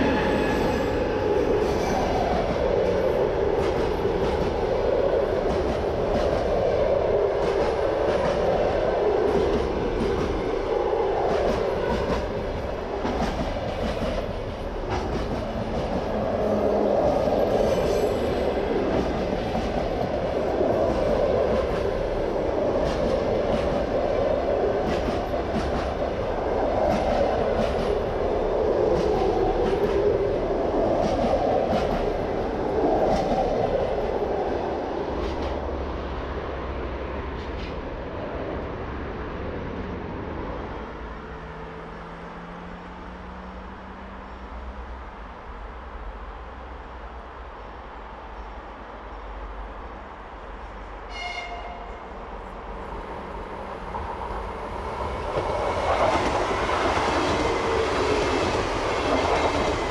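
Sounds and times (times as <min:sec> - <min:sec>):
train rolling rumble: 0:00.0 - 0:59.9
train wheels clicking over rail joints: 0:11.2 - 0:16.3.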